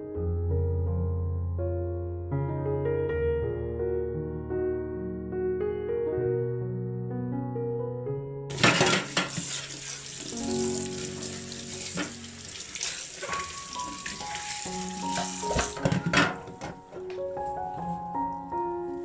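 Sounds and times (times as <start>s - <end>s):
piano music: 0.0s - 19.0s
tap water splashing on plastic: 8.5s - 16.8s.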